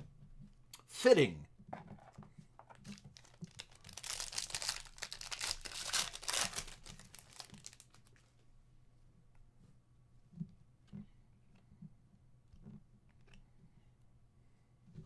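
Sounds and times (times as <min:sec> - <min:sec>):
foil wrapper tearing and crinkling: 0:02.8 - 0:08.1.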